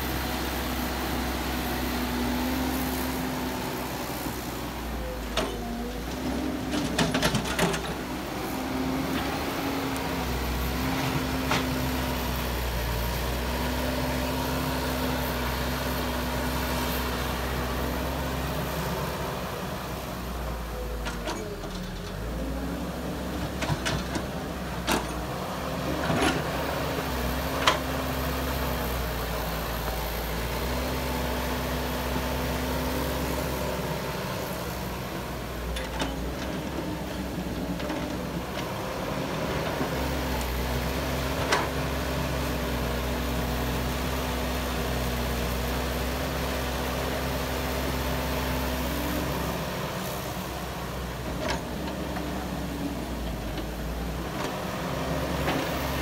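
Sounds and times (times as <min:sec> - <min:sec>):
excavator diesel engine running: 0:00.0 - 0:56.0.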